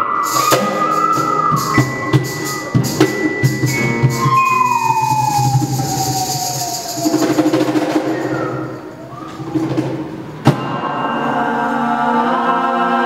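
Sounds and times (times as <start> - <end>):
live band playing: 0.0 - 11.0
siren-like tone sliding down: 3.9 - 9.6.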